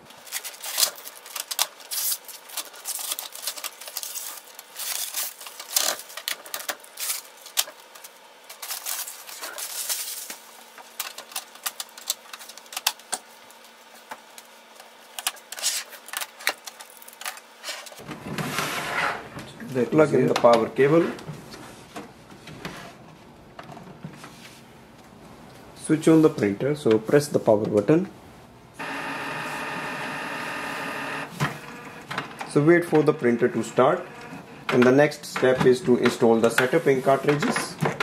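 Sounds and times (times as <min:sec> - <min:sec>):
plastic wrap crinkling: 0:00.0 - 0:18.0.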